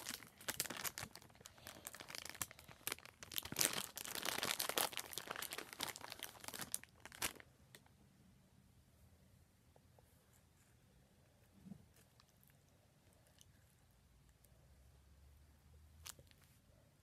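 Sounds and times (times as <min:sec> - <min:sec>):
chip bag crinkling: 0:00.0 - 0:07.8.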